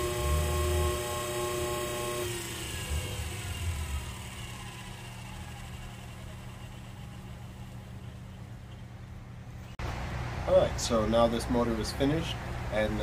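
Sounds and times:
electric motor whir spinning down: 0:00.0 - 0:08.9.

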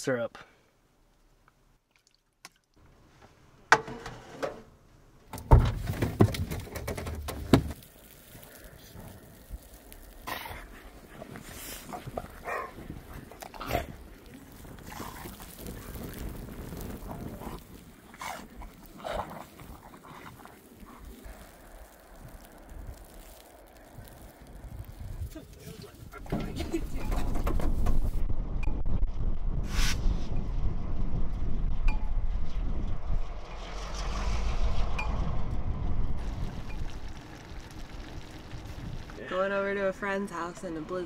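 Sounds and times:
loud low rumble: 0:28.1 - 0:39.1.

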